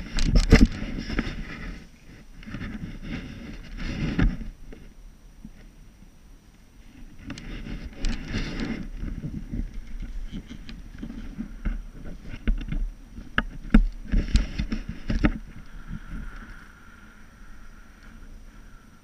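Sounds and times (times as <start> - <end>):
wind buffeting microphone: 7.0 - 19.0.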